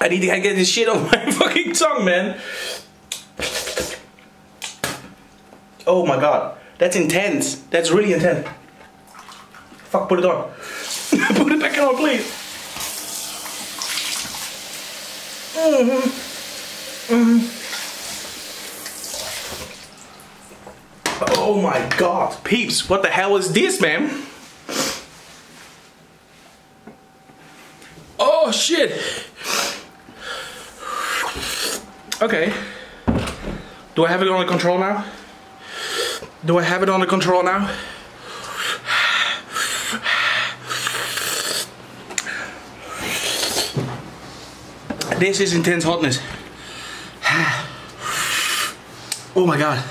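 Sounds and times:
tap water running into sink: 16.3s - 20.0s
man breathing hard: 29.0s - 31.8s, 37.7s - 41.4s, 46.3s - 48.8s
man groaning: 47.2s - 47.8s.

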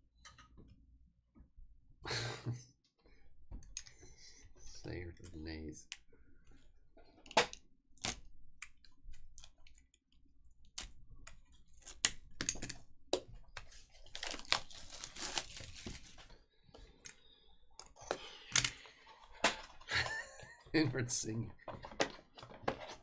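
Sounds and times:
plastic crinkling and tearing: 13.8s - 16.2s
knife slitting shrink wrap: 14.0s - 16.0s.

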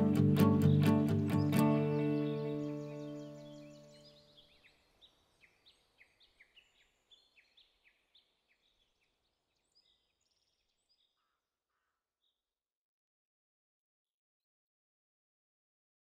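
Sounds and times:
bird chirps: 0.0s - 12.4s.

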